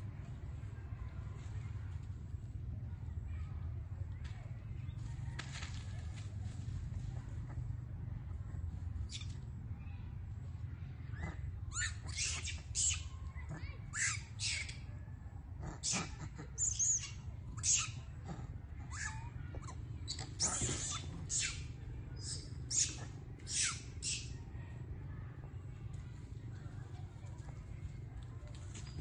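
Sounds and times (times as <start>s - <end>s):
high-pitched animal calls: 11.1s - 14.9s, 15.6s - 24.4s.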